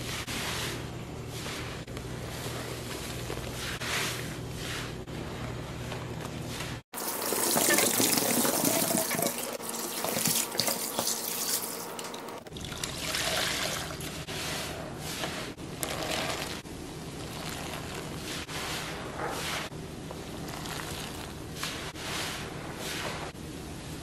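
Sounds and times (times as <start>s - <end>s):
liquid pouring and splashing: 7.0s - 14.4s, 15.8s - 16.6s.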